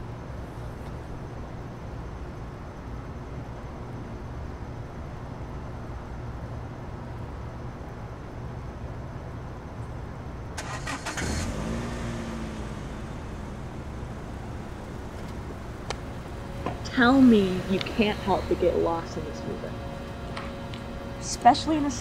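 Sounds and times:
car engine starting and idling: 10.6 - 22.0
steady low rumble: 11.8 - 22.0.

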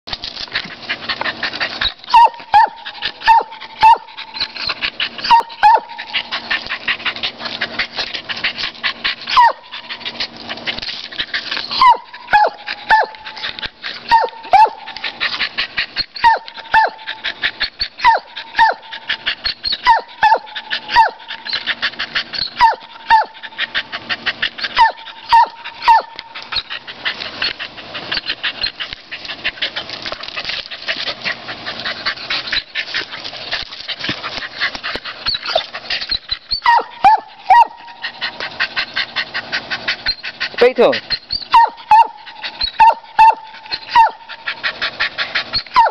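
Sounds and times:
dog barking: 11.8 - 13.2, 14.1 - 14.8, 36.7 - 37.8, 41.5 - 42.2.

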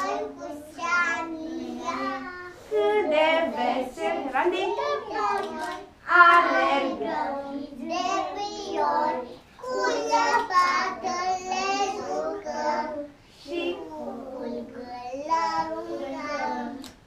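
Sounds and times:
children singing together: 0.0 - 17.0.

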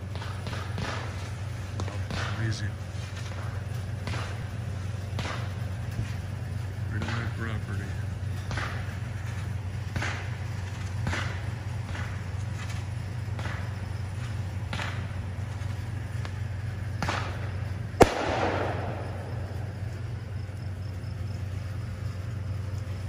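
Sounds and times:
firework crackling: 0.0 - 23.0
fireworks popping: 0.0 - 23.0
steady low hum: 0.0 - 23.0
loud firework bang: 17.0 - 19.8.

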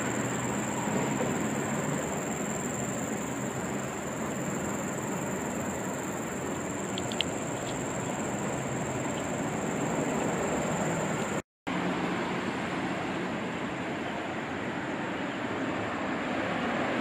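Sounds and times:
high thin insect drone: 0.0 - 11.4.

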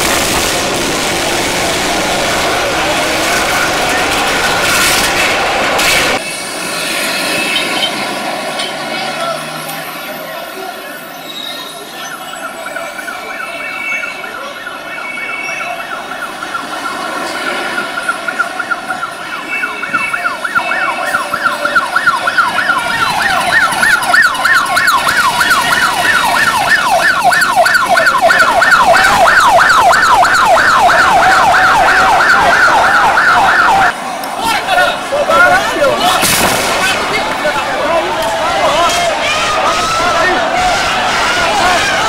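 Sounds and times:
siren yelping: 10.3 - 36.3.

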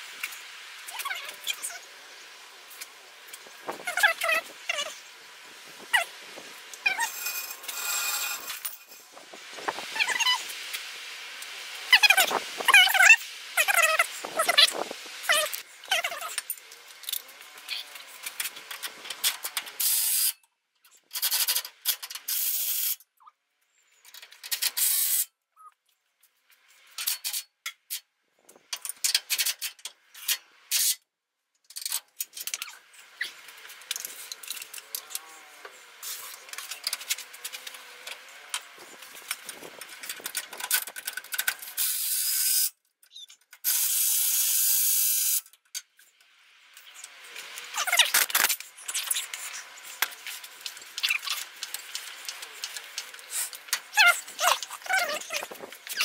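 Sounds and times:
hissing spray bursts: 43.6 - 45.4
ratchet-like clicking: 43.6 - 45.5.

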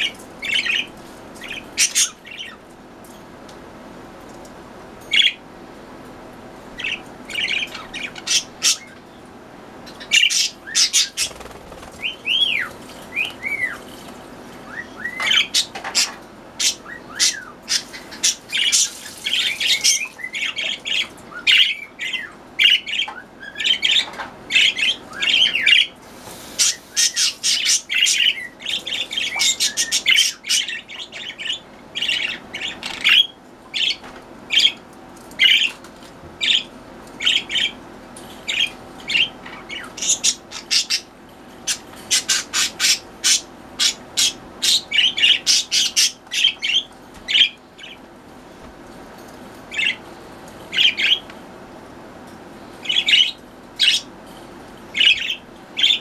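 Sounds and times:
budgerigars chirping and squawking: 0.0 - 2.6, 5.1 - 5.4, 6.8 - 9.0, 9.8 - 13.9, 14.7 - 34.8, 35.4 - 35.8, 36.4 - 37.8, 38.4 - 48.0, 49.7 - 50.0, 50.7 - 51.3, 52.8 - 54.1, 54.9 - 56.0
whistled bird calls: 14.7 - 15.7.

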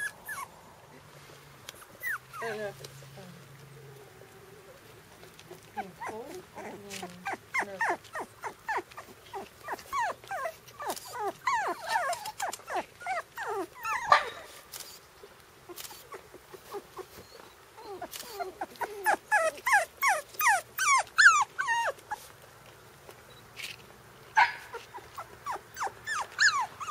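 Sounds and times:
puppies crying: 0.0 - 1.0, 1.8 - 2.7, 5.4 - 14.5, 15.9 - 22.3, 24.4 - 26.9.

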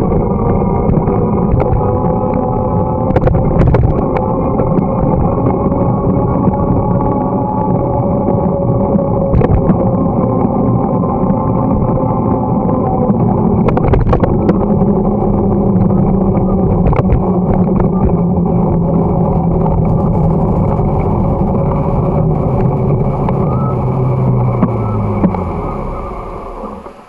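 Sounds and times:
sharp clicks and rattles: 0.0 - 6.7, 9.2 - 10.6, 13.1 - 25.5
wind buffeting microphone: 0.0 - 26.6
road and tyre noise: 0.0 - 27.0
steady low hum: 0.0 - 27.0.

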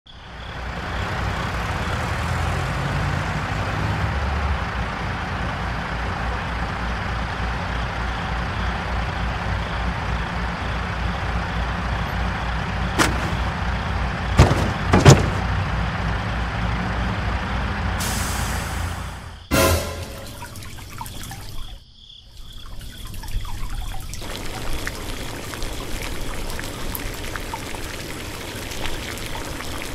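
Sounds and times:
truck engine running: 0.5 - 20.3
sharp knocks: 13.0 - 13.5, 14.4 - 15.5.

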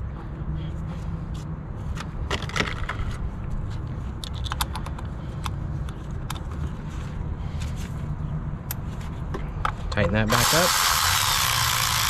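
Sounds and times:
clicks of parts being handled: 4.2 - 6.6.

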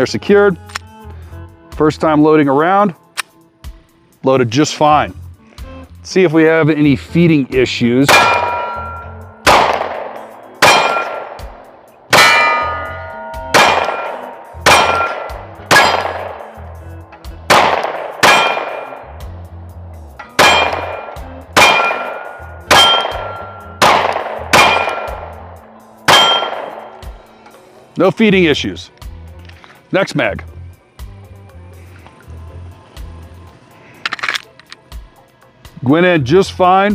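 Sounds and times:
steel plate clanging: 8.1 - 9.2, 10.4 - 11.3, 12.1 - 16.4, 18.1 - 19.0, 20.2 - 25.2, 26.1 - 26.8
pistol shots: 8.1 - 16.6, 17.5 - 19.1, 20.3 - 25.4, 26.1 - 27.1.

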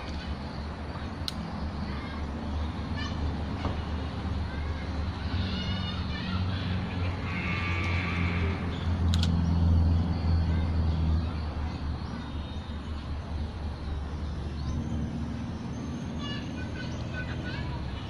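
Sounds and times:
motor vehicle engine hum: 0.0 - 18.0
sharp click: 1.2 - 1.5, 9.0 - 9.4.

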